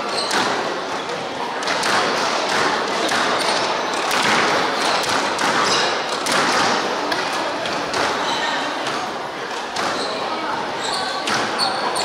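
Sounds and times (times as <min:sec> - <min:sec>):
racket striking squash ball: 0:00.0 - 0:00.8, 0:01.6 - 0:07.0, 0:09.7 - 0:10.1
ball hitting court walls: 0:00.0 - 0:10.3, 0:11.0 - 0:12.0.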